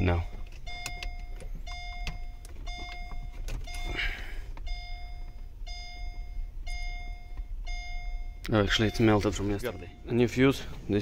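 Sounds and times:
car warning chime beeping: 0.0s - 11.0s.

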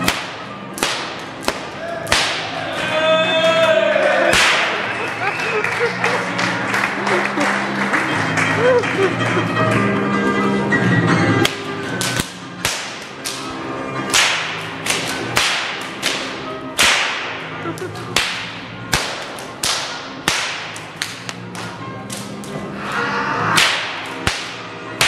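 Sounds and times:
whip cracking: 0.0s - 2.7s, 4.3s - 5.0s, 11.4s - 13.5s, 14.1s - 25.0s.

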